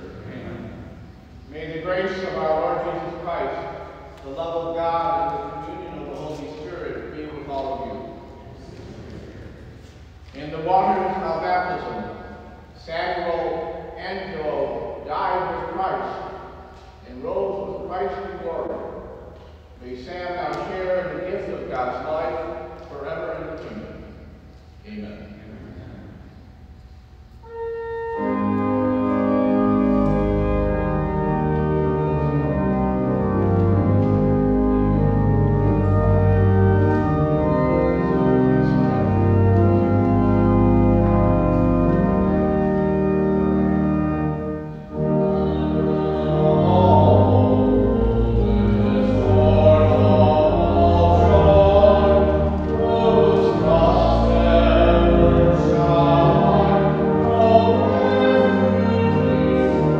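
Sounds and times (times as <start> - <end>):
church organ playing chords: 0.0 - 59.9
voices singing: 45.0 - 59.9.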